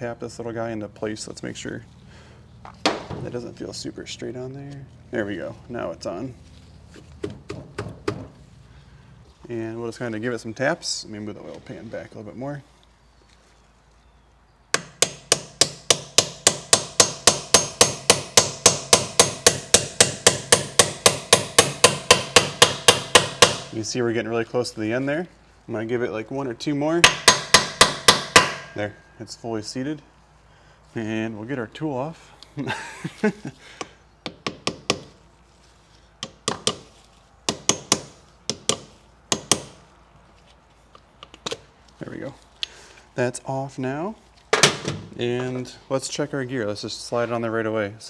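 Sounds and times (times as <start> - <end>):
hammer tapping on metal tool: 14.8 - 23.7, 27.0 - 28.9, 36.2 - 36.9, 37.5 - 39.8.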